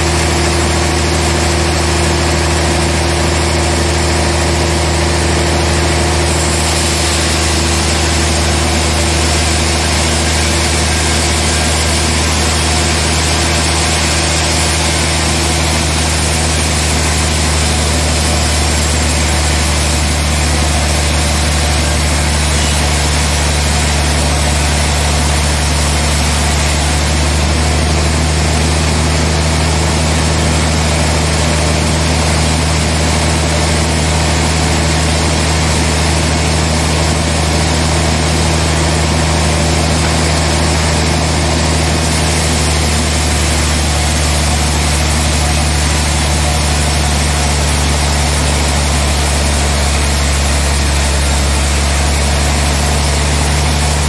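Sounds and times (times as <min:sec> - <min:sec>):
band sawmill sawing log: 0:00.0 - 0:54.0.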